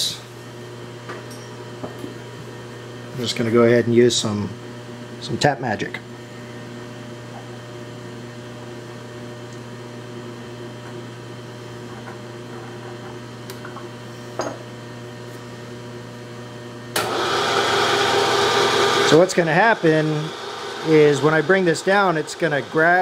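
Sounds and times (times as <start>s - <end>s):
electric motor hum: 0.0s - 23.0s
loud steady machine noise: 16.9s - 23.0s.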